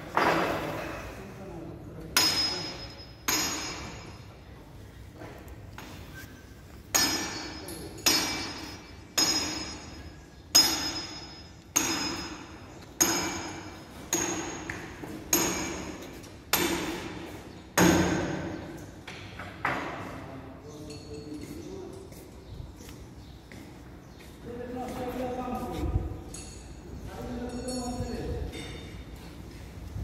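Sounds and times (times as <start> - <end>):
hammer striking metal: 2.2 - 4.3, 6.9 - 18.5.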